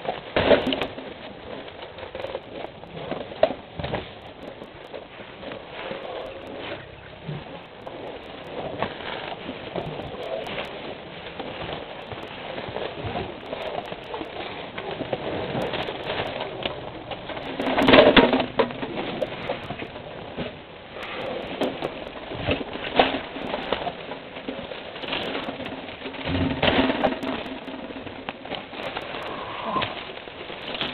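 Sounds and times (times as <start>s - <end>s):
rustling and crackling grass: 0.0s - 30.9s
loud low elephant sound: 29.0s - 30.2s.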